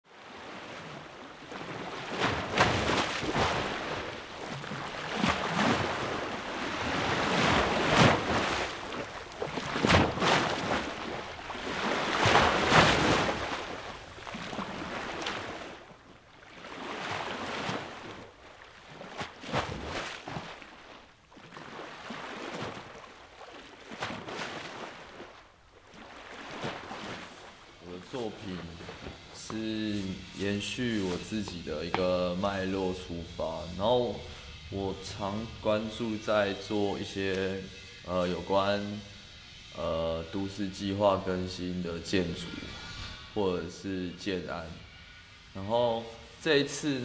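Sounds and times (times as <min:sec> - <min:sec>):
water washing over rocks: 0:00.3 - 0:32.4.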